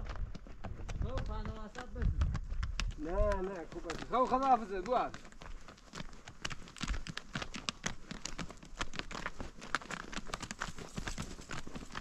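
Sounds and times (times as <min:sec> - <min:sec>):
horse hooves on gravel: 0:00.0 - 0:12.0
stones crunching underfoot: 0:00.0 - 0:12.0.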